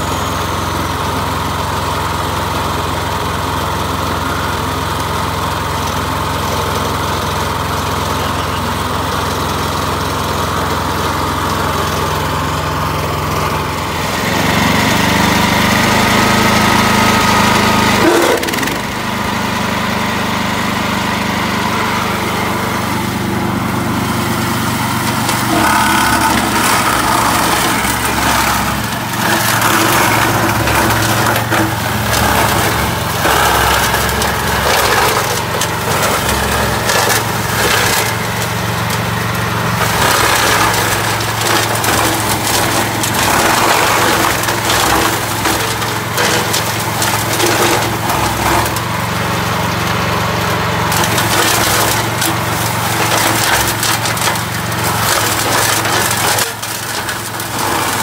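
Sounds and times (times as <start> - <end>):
petrol engine running under load: 0.0 - 58.0
cutter chopping dry weed stalks: 17.9 - 18.9, 24.3 - 39.1, 39.7 - 49.0, 50.9 - 58.0.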